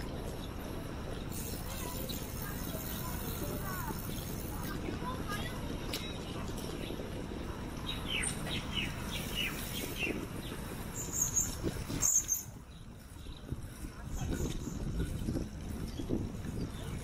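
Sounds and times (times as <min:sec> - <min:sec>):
wind and bicycle tyres rumbling: 0:00.0 - 0:17.0
small bird chirping: 0:07.8 - 0:13.5.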